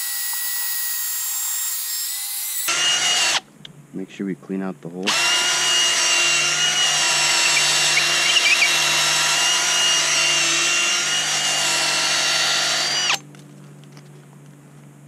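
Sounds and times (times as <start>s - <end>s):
power drill whining: 2.5s - 3.4s, 5.1s - 13.2s.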